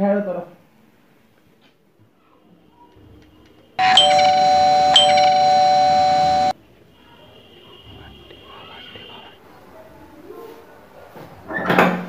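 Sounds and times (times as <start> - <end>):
electric doorbell ringing: 3.8 - 6.5.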